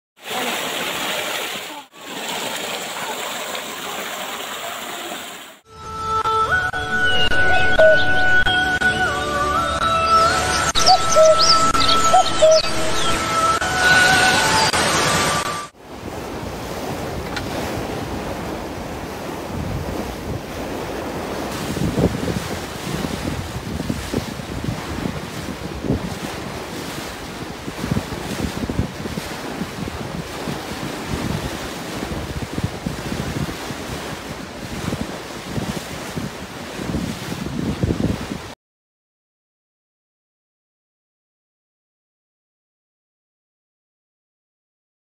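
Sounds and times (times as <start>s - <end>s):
water splashing onto rock: 0.2s - 5.6s
rush of open water: 0.2s - 5.7s, 7.3s - 38.6s
wind buffeting microphone: 15.9s - 38.6s.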